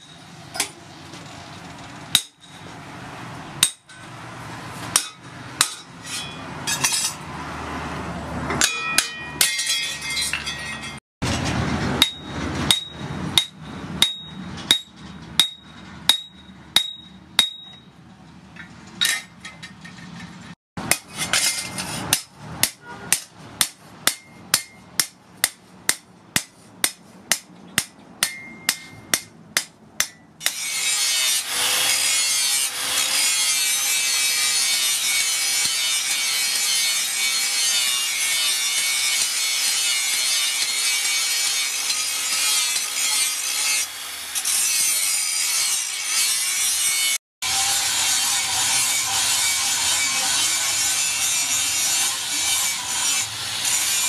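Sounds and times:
hammer striking steel on anvil: 2.1 - 2.7, 3.6 - 4.1, 4.9 - 7.2, 8.5 - 11.0, 12.0 - 18.0, 20.8 - 31.4
angle grinder cutting steel: 30.4 - 54.0.

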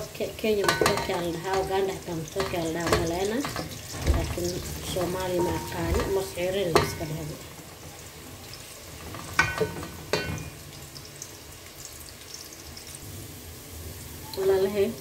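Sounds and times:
onion sizzling in pot: 0.0 - 15.0
wooden spoon knocking metal pot: 0.6 - 7.4, 9.3 - 10.6.

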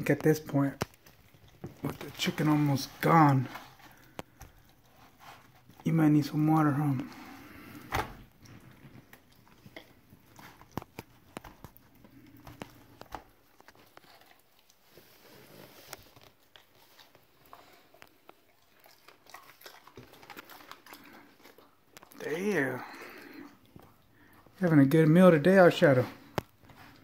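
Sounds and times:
dog biting and chewing: 0.6 - 5.9, 7.2 - 22.2.

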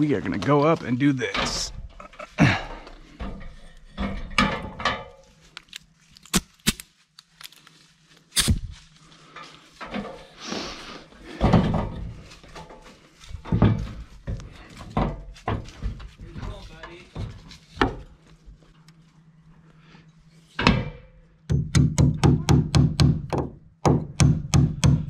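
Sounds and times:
thumps of climbing a ladder: 1.4 - 5.3, 11.3 - 18.2.

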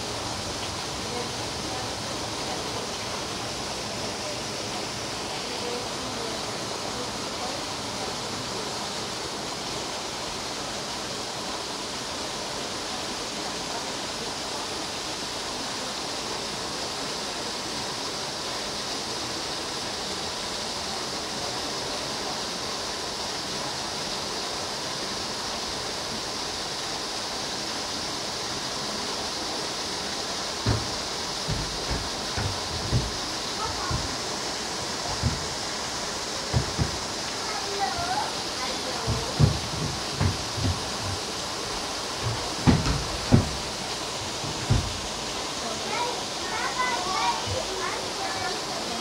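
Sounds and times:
steady rushing noise: 0.0 - 8.5, 30.5 - 49.0
low thump: 30.6 - 33.2, 36.5 - 37.1.

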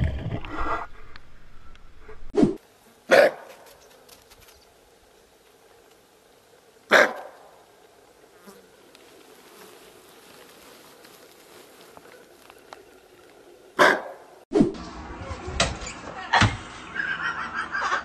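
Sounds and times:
antelope alarm bark: 3.1 - 3.7, 6.9 - 7.5, 13.8 - 14.3.

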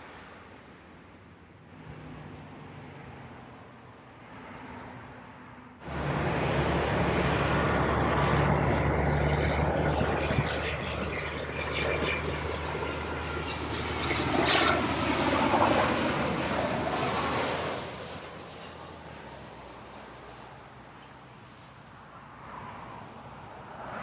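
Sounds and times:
high jet whine: 5.8 - 20.2
jet engine roar: 5.8 - 22.0.

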